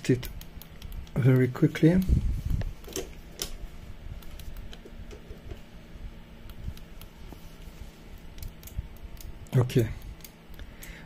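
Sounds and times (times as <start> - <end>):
gloved hands clicking and rustling: 0.0 - 5.7, 6.4 - 11.0
low steady hum: 0.0 - 11.0.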